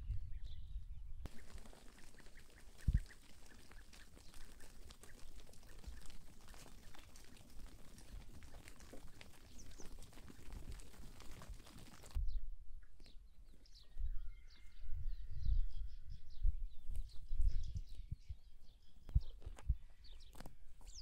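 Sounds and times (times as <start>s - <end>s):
small ticks: 1.3s - 12.2s.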